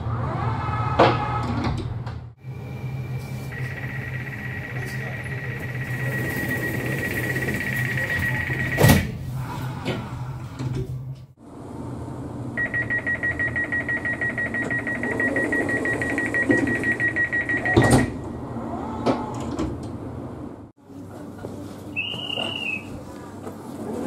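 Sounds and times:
rapidly pulsing warning beep: 0:02.4 - 0:09.0, 0:12.6 - 0:18.1.

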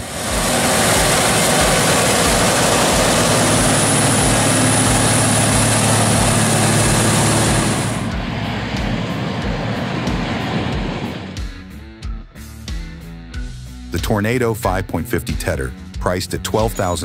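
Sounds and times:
thin high whine: 0:00.0 - 0:11.3
harvesting machine drone: 0:00.0 - 0:12.0.

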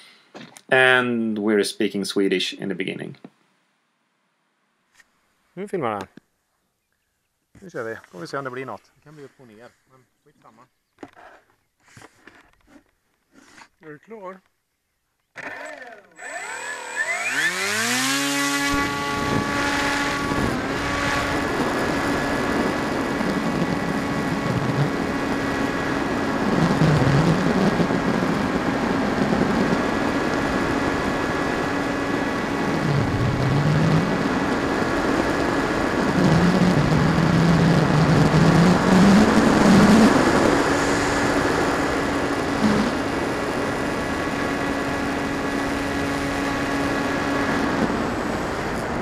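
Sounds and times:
electric motor whine: 0:15.4 - 0:49.0
wind rushing over microphone: 0:18.7 - 0:49.0.

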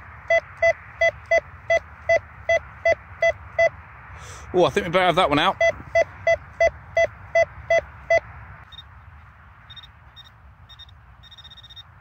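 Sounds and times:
high-pitched electronic beeps: 0:00.2 - 0:03.8, 0:05.5 - 0:08.9, 0:09.7 - 0:11.9
metal detector beeps: 0:00.2 - 0:03.8, 0:05.5 - 0:08.9, 0:09.7 - 0:11.9.

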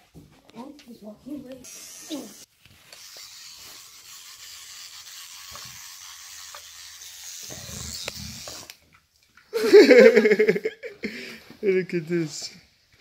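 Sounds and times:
electric toothbrush buzzing: 0:01.6 - 0:08.8.

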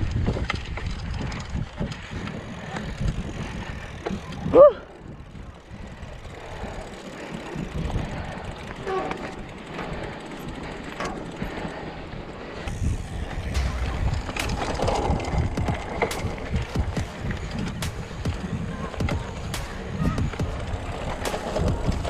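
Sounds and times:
bike knocks and rattles: 0:00.0 - 0:04.6, 0:05.2 - 0:11.8, 0:12.6 - 0:22.0
bike tyres on rocky trail: 0:00.0 - 0:22.0
wind buffeting microphone: 0:00.0 - 0:22.0.

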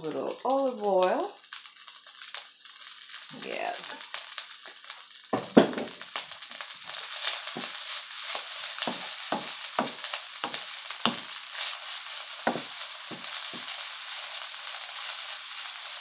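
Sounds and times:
rice sizzling in a wok: 0:00.0 - 0:16.0
wooden spoon scraping a pan: 0:06.9 - 0:14.4.

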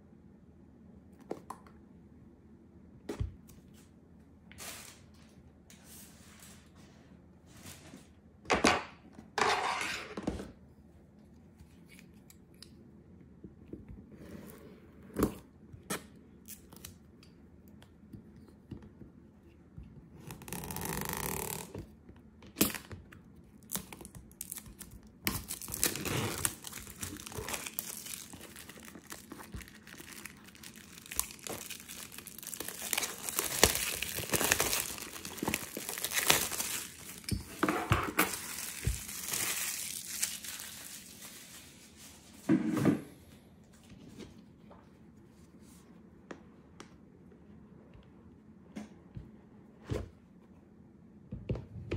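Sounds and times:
plastic wrap tearing and crinkling: 0:23.6 - 0:37.6, 0:38.2 - 0:41.9.

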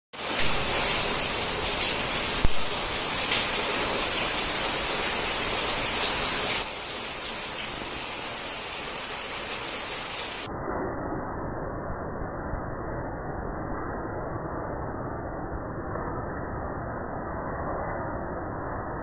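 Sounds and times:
heavy rain pouring: 0:00.2 - 0:10.5.

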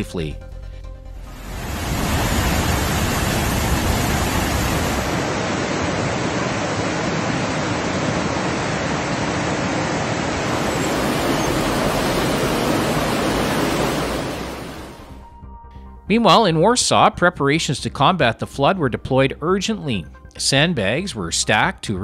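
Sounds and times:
floodwater rushing: 0:01.4 - 0:15.2.

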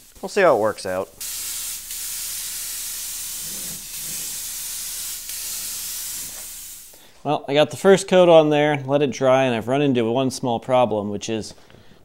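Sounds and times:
paint spray gun hissing: 0:00.0 - 0:07.0.

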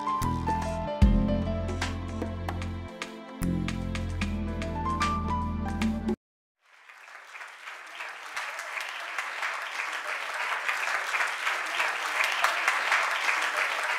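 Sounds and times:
background music: 0:00.0 - 0:06.2
applause: 0:06.6 - 0:13.9.

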